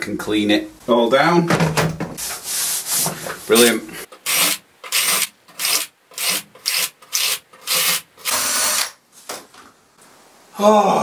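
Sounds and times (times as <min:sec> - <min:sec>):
cordless drill running: 0:04.3 - 0:09.0.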